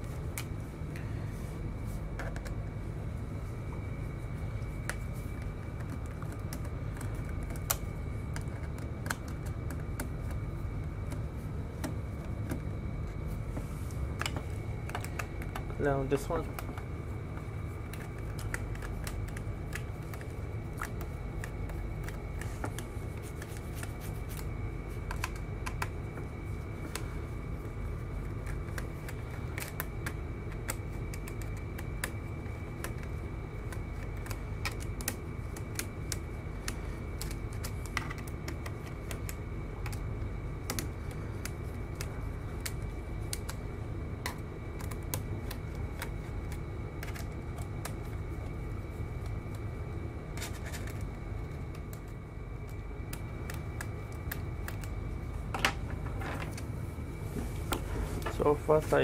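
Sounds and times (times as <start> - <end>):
background hum: 0.0 - 59.0
faint high whine: 0.0 - 59.0.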